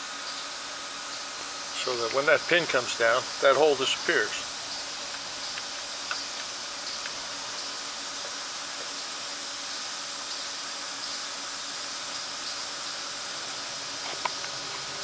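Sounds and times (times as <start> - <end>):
machine shop hiss: 0.0 - 5.0.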